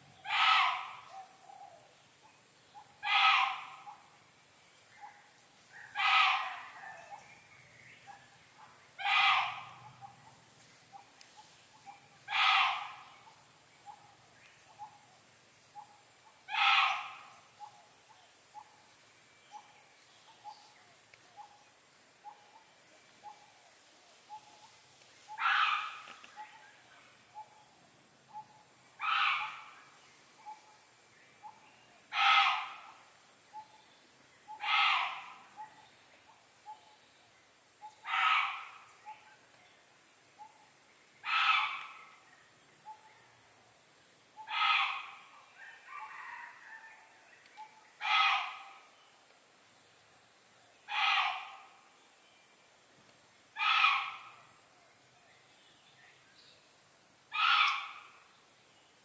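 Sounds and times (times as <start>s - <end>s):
loud animal calls: 0.2s - 1.1s, 3.0s - 4.0s, 5.8s - 6.9s, 9.0s - 10.2s, 12.2s - 13.4s, 16.5s - 17.4s, 25.3s - 26.2s, 29.0s - 29.8s, 32.1s - 33.0s, 34.5s - 35.5s, 37.9s - 38.9s, 41.2s - 42.1s, 44.4s - 45.4s, 48.0s - 48.8s, 50.9s - 51.7s, 53.6s - 54.4s, 57.3s - 58.2s.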